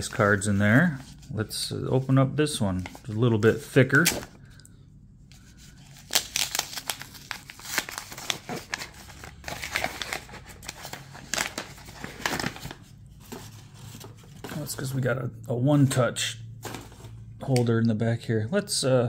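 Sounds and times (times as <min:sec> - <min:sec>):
paper wrapper tearing and crinkling: 0:05.8 - 0:12.8.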